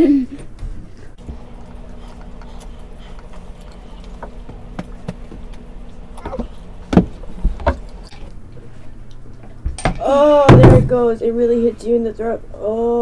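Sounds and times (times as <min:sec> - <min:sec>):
steady low hum: 0:00.0 - 0:13.0
noodles being slurped and chewed: 0:01.2 - 0:08.4.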